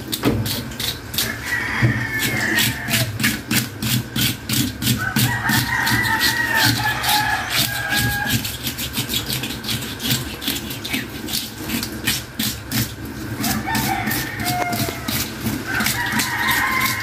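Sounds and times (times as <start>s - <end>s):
scraper rasping fish scales: 0.0s - 17.0s
rooster crowing: 1.2s - 3.3s, 5.0s - 8.6s, 13.4s - 17.0s.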